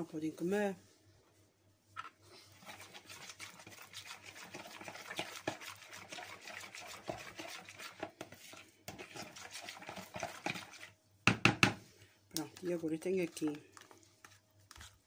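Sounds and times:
spoon stirring liquid: 2.4 - 11.8, 12.4 - 15.0.

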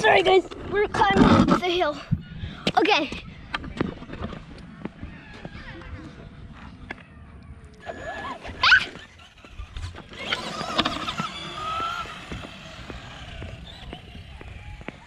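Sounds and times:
rc truck motor whining: 7.8 - 15.0.

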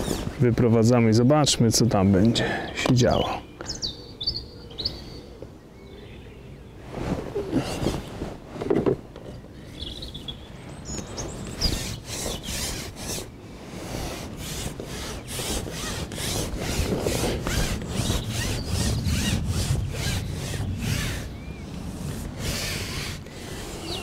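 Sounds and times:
fishing pole sections sliding: 11.3 - 24.0.

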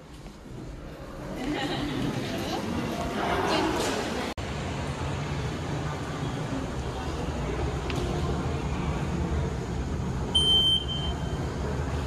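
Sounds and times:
underground station hum: 0.0 - 12.0
short high electronic beep: 10.4 - 11.4.

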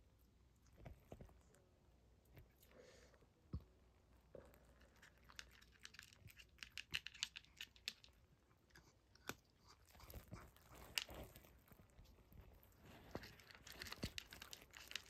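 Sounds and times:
cat crunching dry kibble: 4.4 - 15.0.

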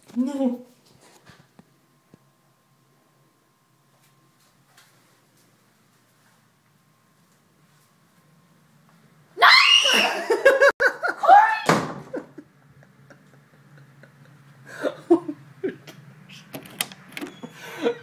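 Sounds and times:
woman shrieking and laughing: 9.4 - 12.4.

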